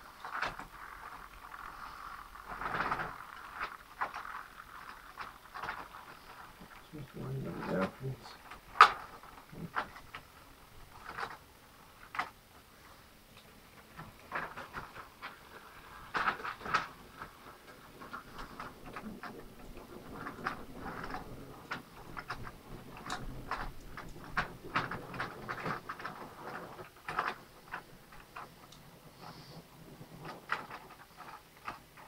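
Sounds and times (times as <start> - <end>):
model train wheels clicking on rails: 0.0 - 32.0.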